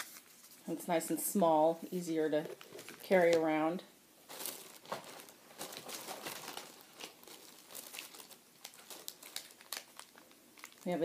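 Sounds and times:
tissue paper rustling: 4.3 - 10.9.

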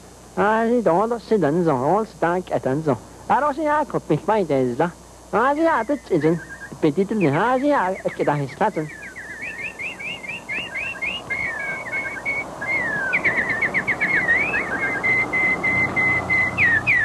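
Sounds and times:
steady hiss: 0.0 - 17.0
high whistled chirps: 5.4 - 17.0.

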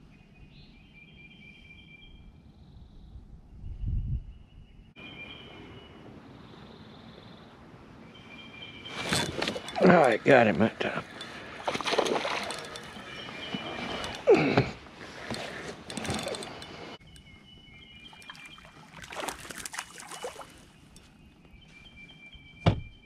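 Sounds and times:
fish splashing in water: 11.1 - 13.7, 18.2 - 20.7.

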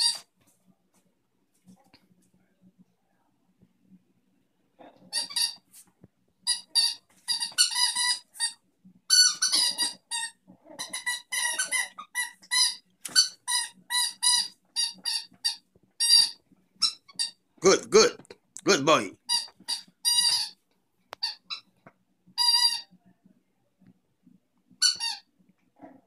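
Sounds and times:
squeaky dog toy squeaking: 0.0 - 0.2, 5.0 - 5.6, 6.4 - 17.4, 18.9 - 20.6, 21.2 - 21.7, 22.4 - 22.9, 24.8 - 25.3.

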